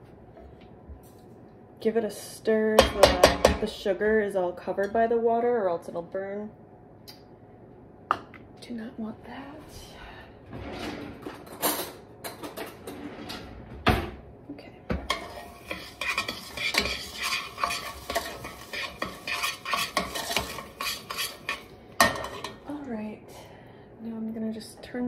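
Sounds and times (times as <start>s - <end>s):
spoon scraping and clinking in pot: 15.0s - 22.6s.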